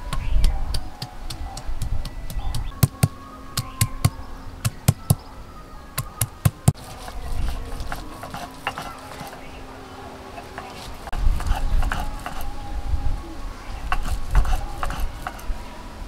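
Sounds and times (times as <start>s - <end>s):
stone roller knocking on stone: 6.2s - 9.4s.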